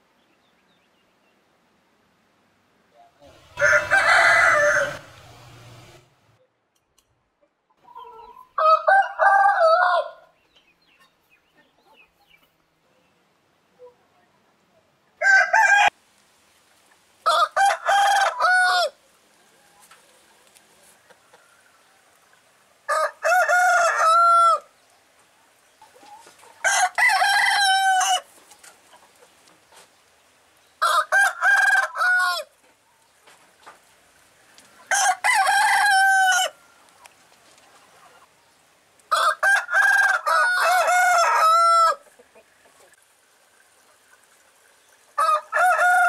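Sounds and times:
rooster crowing: 3.2 - 6.0, 8.6 - 10.3, 15.2 - 16.0, 17.2 - 19.0, 22.9 - 24.7, 26.6 - 28.3, 30.8 - 32.5, 34.9 - 36.7, 39.1 - 42.0, 45.2 - 46.0.

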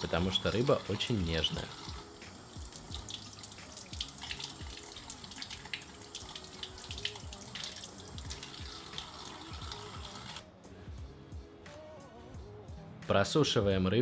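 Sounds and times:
tap water splashing into sink: 0.0 - 10.4.

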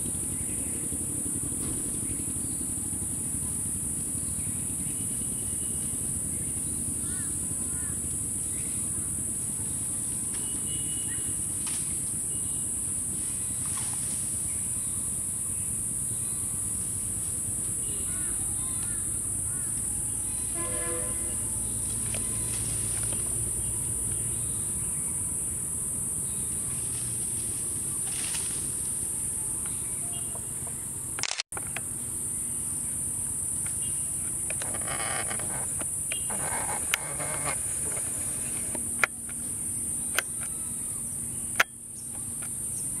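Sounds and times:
high insect drone: 0.0 - 43.0
short horn toot: 20.5 - 21.5.

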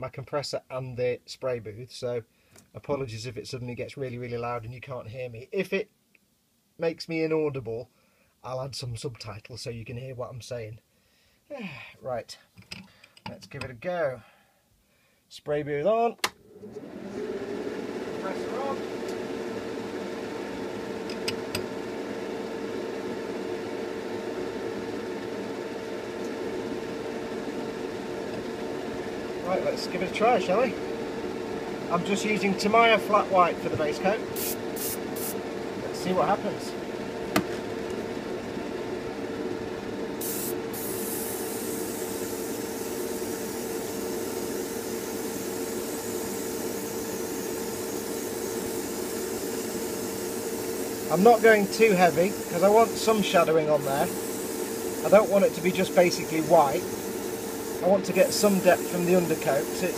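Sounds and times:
fan and compressor whirring hum: 16.4 - 59.9
airbrush spraying hiss: 34.3 - 35.4, 40.2 - 59.9.

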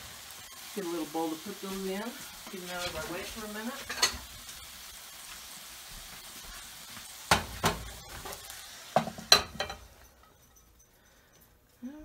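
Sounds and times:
mushrooms sizzling in a skillet: 0.0 - 10.1
spatula scraping a pan: 2.2 - 4.4.

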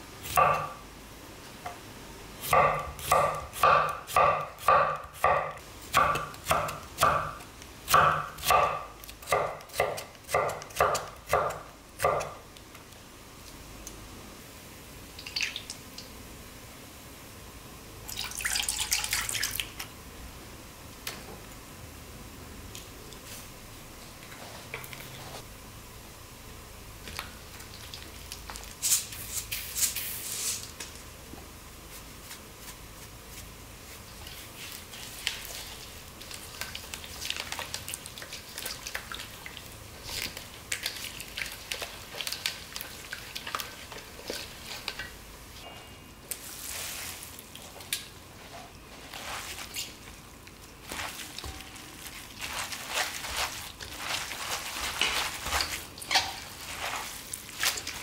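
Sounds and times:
hands squishing noodles: 31.9 - 45.2, 48.8 - 58.0.

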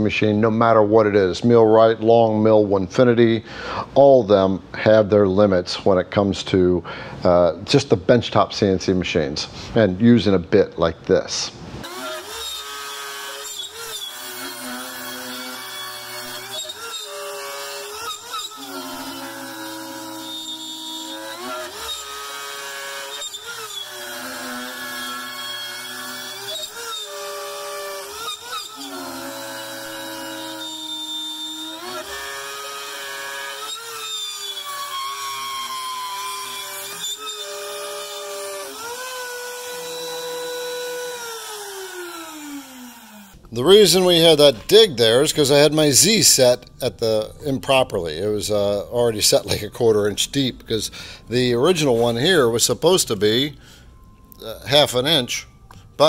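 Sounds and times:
router motor whine cutting wood: 11.8 - 43.4.

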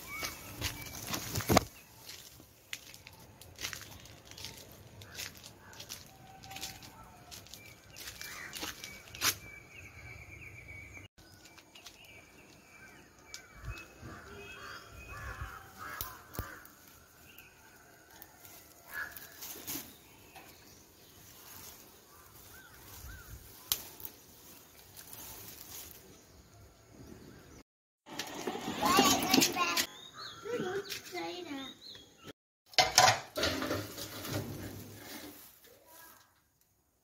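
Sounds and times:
birds chirping: 0.0 - 18.0, 18.9 - 32.3.

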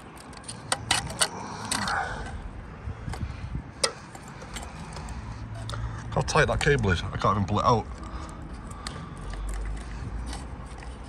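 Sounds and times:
rustling scrape of cabling: 7.8 - 11.0.

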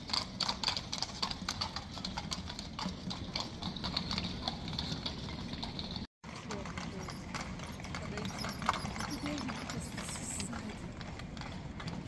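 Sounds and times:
horse hooves clip-clopping: 0.0 - 12.0
low street rumble: 0.0 - 12.0.

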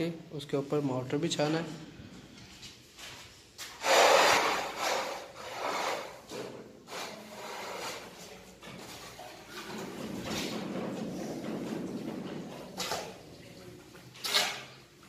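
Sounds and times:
scraping wet mortar: 3.6 - 11.2.

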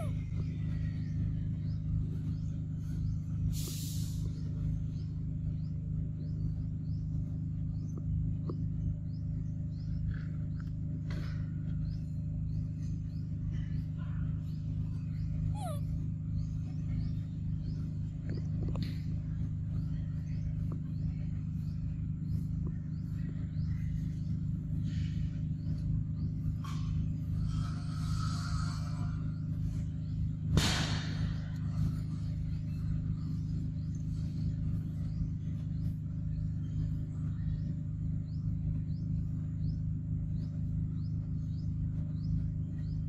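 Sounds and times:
steady low drone: 0.0 - 43.0
faint high chirps: 14.7 - 19.0
short animal calls: 15.4 - 16.0.

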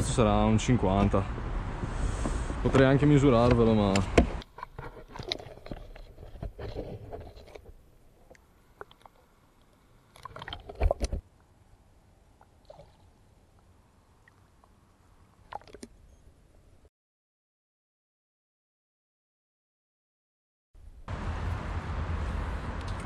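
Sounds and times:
water sloshing and gurgling: 4.5 - 11.2, 12.3 - 16.0
knocks and splashes: 10.2 - 11.2, 15.4 - 15.9.

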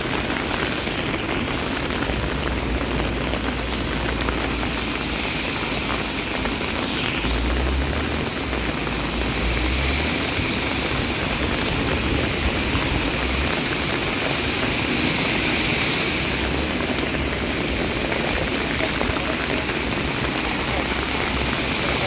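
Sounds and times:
heavy rain: 0.0 - 22.0
water rushing over drain grates: 0.0 - 22.0.

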